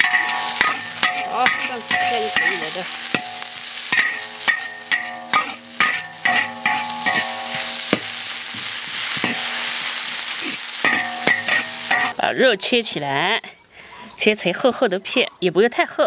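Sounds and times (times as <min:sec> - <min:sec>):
dry sizzle: 0:00.0 - 0:12.2
metal spatula scraping a wok: 0:00.0 - 0:12.2.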